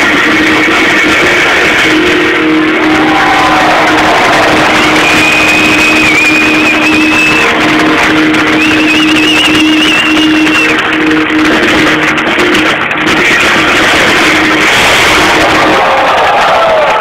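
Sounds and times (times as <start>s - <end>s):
live rock band: 0.0s - 17.0s
high note with vibrato: 0.2s - 16.1s.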